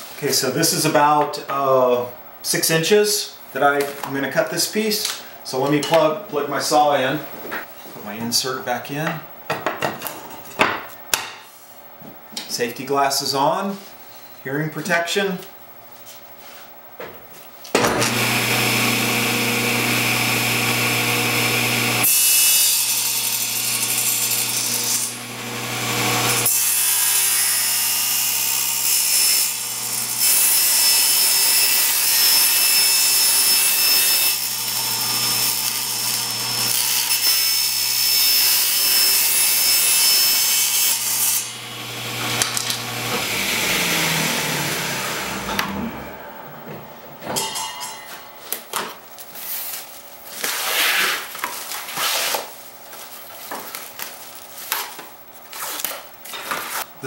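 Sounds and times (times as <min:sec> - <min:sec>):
table saw cutting plastic: 0:17.8 - 0:47.9
saw blade winding down: 0:17.9 - 0:22.1, 0:22.7 - 0:46.5.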